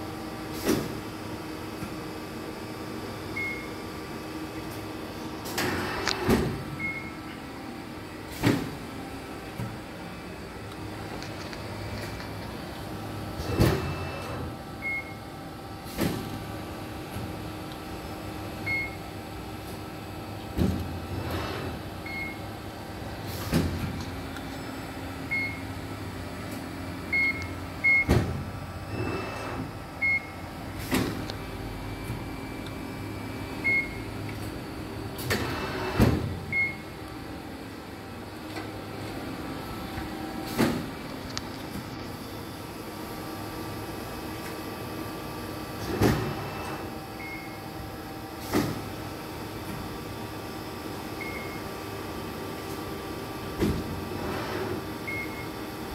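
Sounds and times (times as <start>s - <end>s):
hydraulic press humming: 4.6s - 44.6s, 45.7s - 49.8s.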